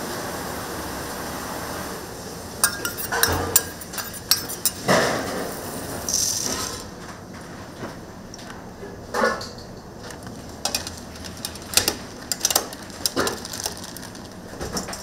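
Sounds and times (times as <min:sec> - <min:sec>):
dishes and utensils clinking: 0:02.6 - 0:05.6.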